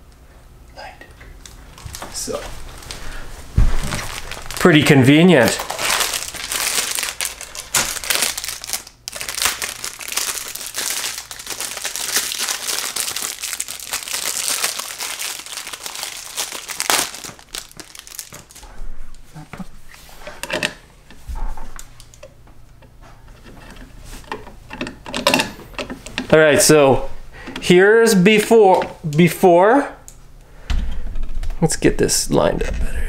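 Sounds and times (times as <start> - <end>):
packaging crinkling and tearing: 1.4 - 18.6
clicks and handling noise: 21.8 - 26.4.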